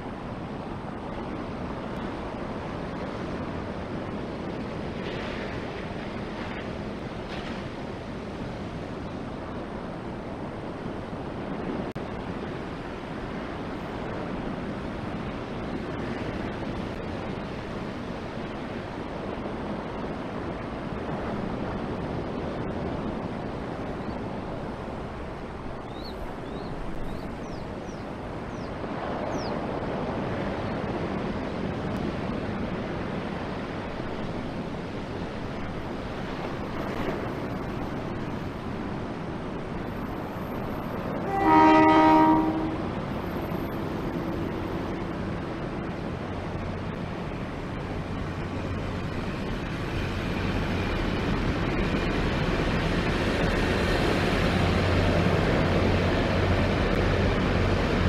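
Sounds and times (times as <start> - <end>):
ocean surf breaking: 0.0 - 58.0
wind buffeting microphone: 0.0 - 58.0.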